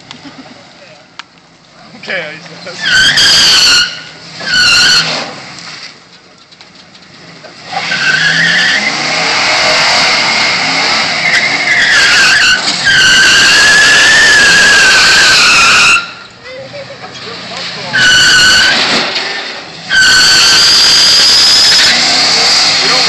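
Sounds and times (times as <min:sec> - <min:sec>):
tires squealing: 0:01.6 - 0:23.0.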